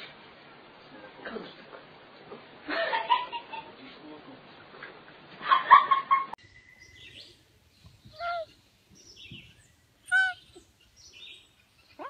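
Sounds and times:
lynx meow-like calls: 10.1s - 10.5s.

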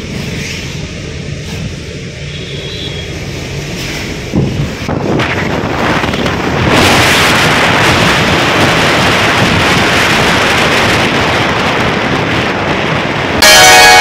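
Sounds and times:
wet road noise: 0.0s - 13.4s
wind rushing against vehicle: 0.0s - 14.0s
heavy rain on vehicle: 4.3s - 14.0s.

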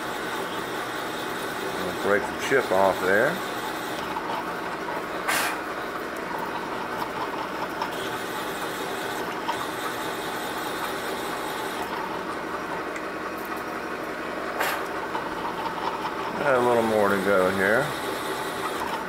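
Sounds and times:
drill press motor hum: 0.0s - 19.0s.

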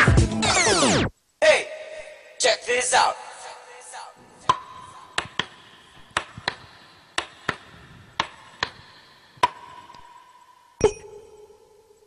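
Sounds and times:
high electronic beep: 10.8s - 11.5s.

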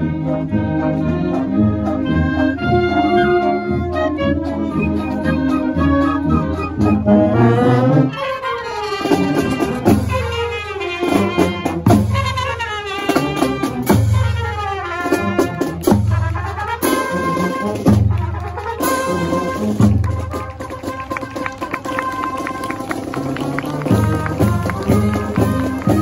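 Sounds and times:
marching band playing: 0.0s - 26.0s.

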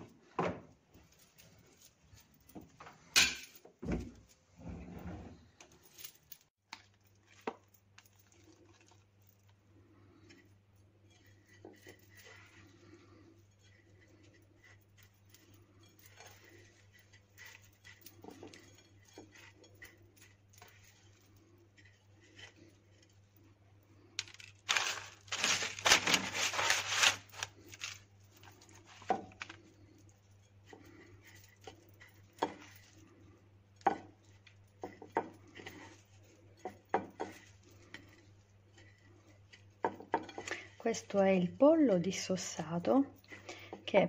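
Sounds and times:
hands rubbing chicken in breadcrumbs: 6.6s - 9.6s
crackly scraping on plate: 10.2s - 23.4s, 24.0s - 33.2s, 33.8s - 40.8s.

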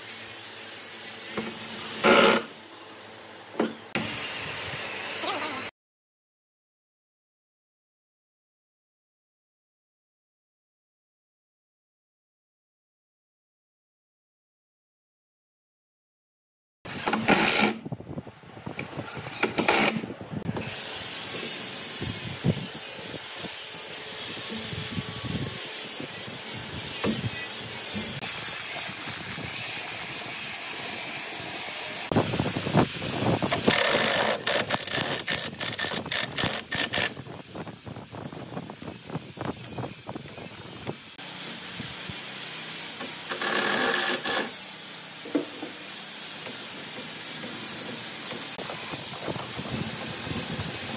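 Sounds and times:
cordless drill running: 0.6s - 3.1s, 20.6s - 27.8s, 32.1s - 37.5s, 39.9s - 47.4s.

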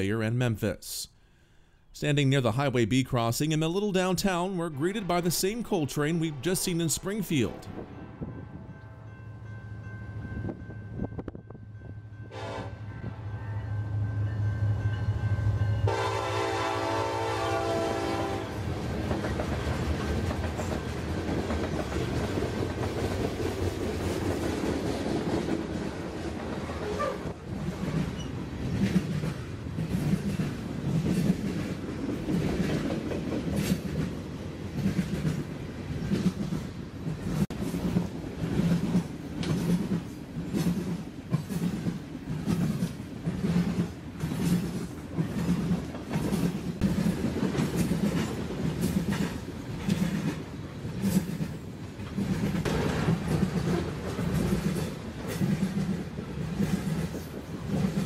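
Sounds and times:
diesel locomotive passing: 2.3s - 58.0s
train wheels clickety-clack: 18.7s - 58.0s.

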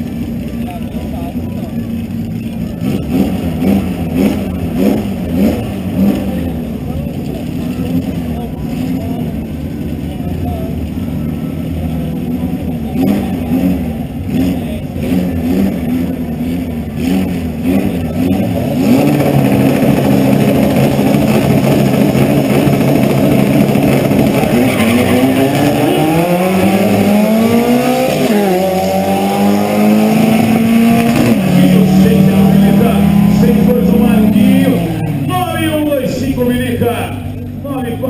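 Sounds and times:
race car engines running: 0.0s - 38.0s
car accelerating through gears: 12.0s - 37.4s.

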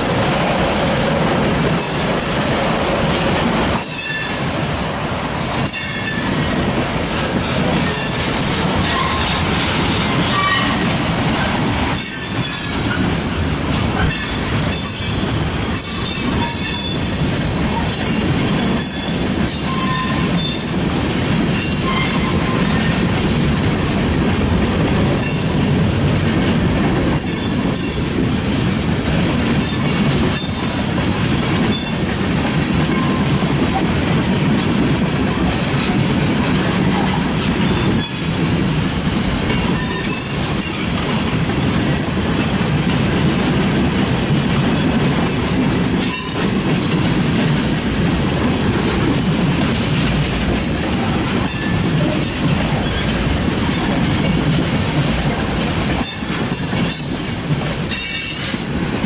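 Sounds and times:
train wheels rumbling on rails: 0.0s - 59.0s
wheel squeals: 56.0s - 58.5s.

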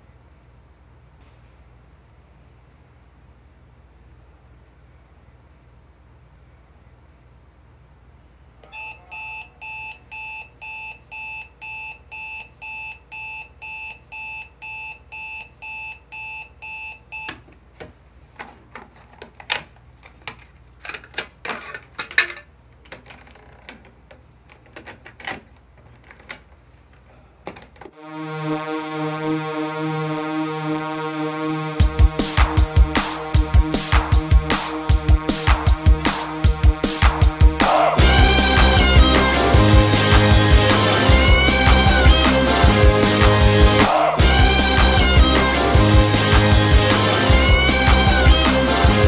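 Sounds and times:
music with steady beat: 28.0s - 49.0s.

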